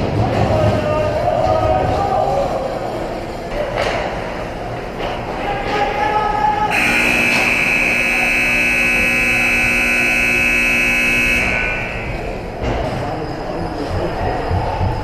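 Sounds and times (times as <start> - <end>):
rink background noise: 0.0 - 15.0
scoreboard horn blast: 6.7 - 12.4.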